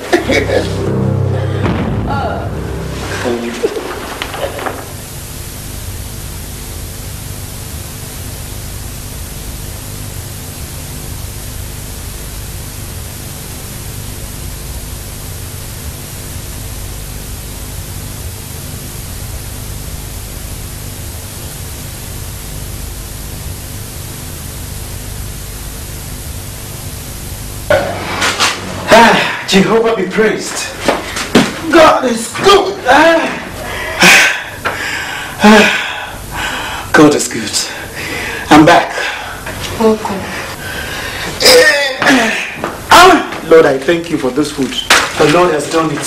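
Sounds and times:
faint low hum: 0:00.0 - 0:46.0
steady hiss: 0:00.0 - 0:46.0.

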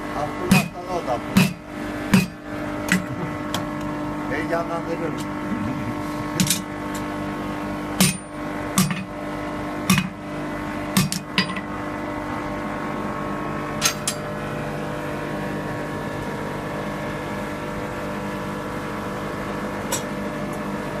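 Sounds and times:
steady mechanical hum: 0:00.0 - 0:21.0
hammer striking steel on anvil: 0:00.5 - 0:03.1, 0:06.4 - 0:06.7, 0:08.0 - 0:09.1, 0:09.9 - 0:10.2, 0:11.0 - 0:11.6.

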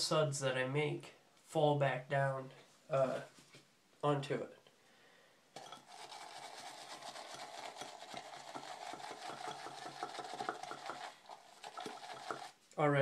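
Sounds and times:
brush swishing lather in bowl: 0:05.8 - 0:12.7.

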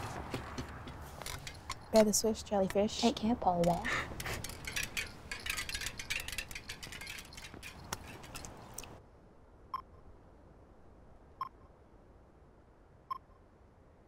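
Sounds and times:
high-pitched clicking and ticking: 0:03.5 - 0:09.0.

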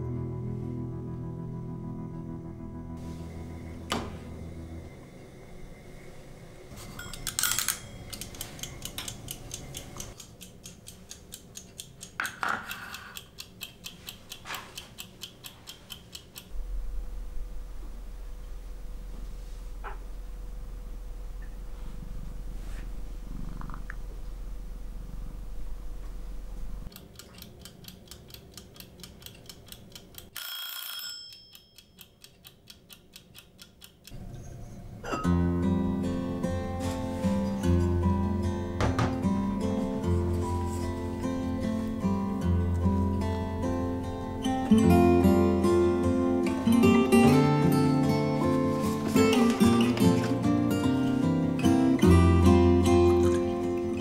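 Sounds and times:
acoustic guitar music: 0:00.0 - 0:05.1, 0:35.0 - 0:54.0
mechanical kitchen timer ticking: 0:07.0 - 0:16.5, 0:26.9 - 0:34.2
timer scraping as it is turned: 0:07.0 - 0:16.5
timer clattering: 0:07.0 - 0:16.6, 0:26.9 - 0:34.2
cat purring: 0:21.4 - 0:25.3.

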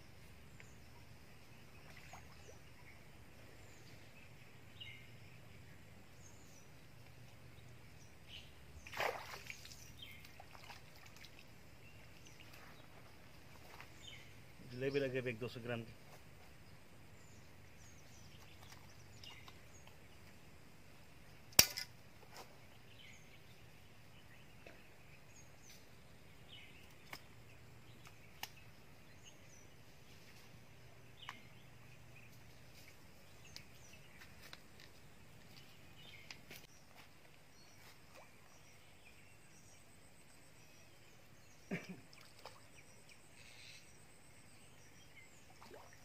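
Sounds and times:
faint bird chirps: 0:35.5 - 0:46.0.

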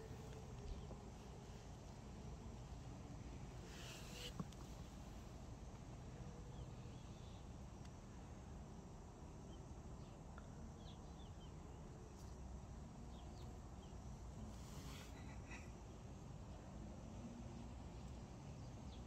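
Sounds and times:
faint bird chirps: 0:03.6 - 0:04.5.

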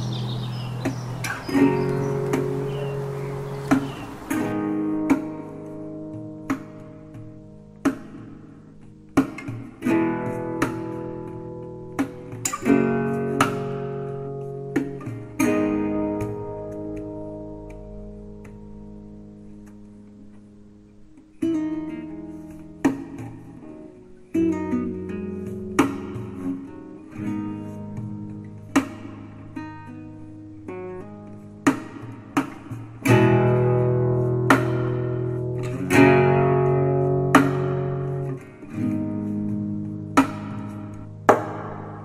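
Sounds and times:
acoustic guitar music: 0:00.0 - 0:42.0.

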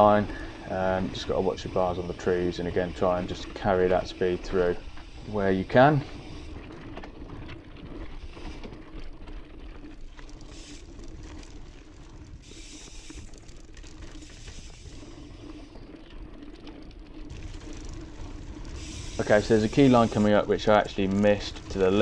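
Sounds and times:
bike rattling: 0:00.0 - 0:22.0
tyres rumbling on dirt: 0:00.0 - 0:22.0.

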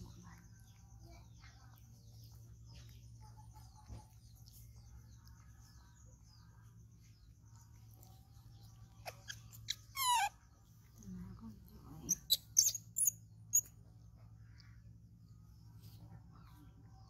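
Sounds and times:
faint high chirps: 0:00.0 - 0:17.0
baby monkey squeaking: 0:08.9 - 0:10.9, 0:12.0 - 0:13.8.

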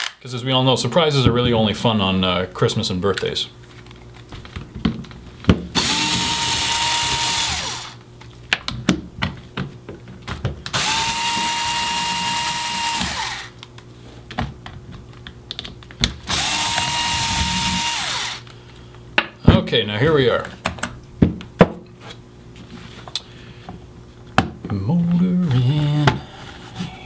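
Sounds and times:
cordless screwdriver whine: 0:05.8 - 0:08.0, 0:10.7 - 0:13.5, 0:16.3 - 0:18.5
clicks and knocks of handling: 0:20.4 - 0:21.5.

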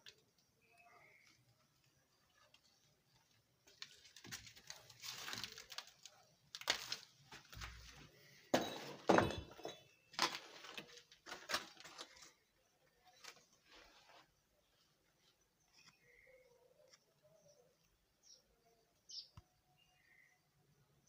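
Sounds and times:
crunching and scraping: 0:00.0 - 0:16.3.

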